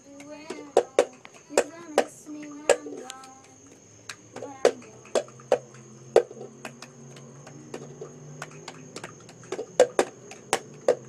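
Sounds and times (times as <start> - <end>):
loud sharp knocks: 4.4 - 11.0.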